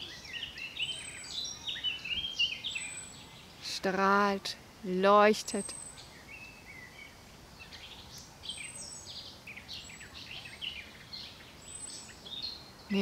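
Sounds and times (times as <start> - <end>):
faint outdoor hiss: 0.0 - 13.0
songbirds chirping: 0.0 - 13.0.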